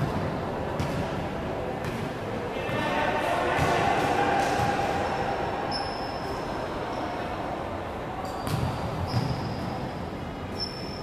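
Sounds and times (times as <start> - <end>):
ball bouncing on wooden court: 0.0 - 1.2, 1.8 - 2.1, 8.4 - 9.6
faint high squeaks: 8.2 - 11.0.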